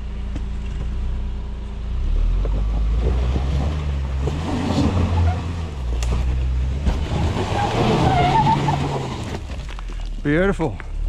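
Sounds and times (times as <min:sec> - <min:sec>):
car engine at low revs: 0:00.0 - 0:11.0
tyres crunching on stones: 0:02.4 - 0:11.0.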